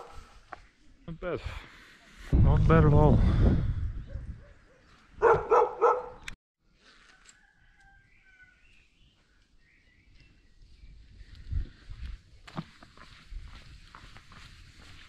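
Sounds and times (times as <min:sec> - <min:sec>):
dog barking: 0:00.0 - 0:00.2, 0:04.1 - 0:06.3
faint bird chirps: 0:07.4 - 0:11.6.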